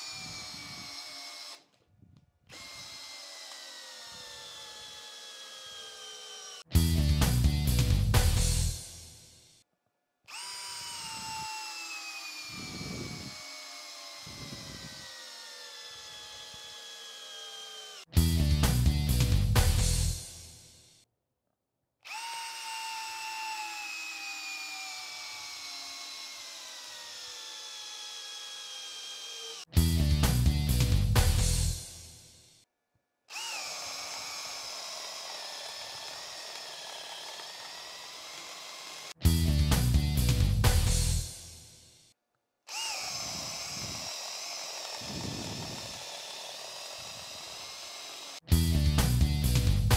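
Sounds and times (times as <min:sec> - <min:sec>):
drill motor whine: 0:00.0 - 0:01.8, 0:02.5 - 0:06.8, 0:10.3 - 0:18.1, 0:22.1 - 0:29.7, 0:33.3 - 0:39.2, 0:42.7 - 0:48.5
low rumbling pulses from wood: 0:43.1 - 0:47.6.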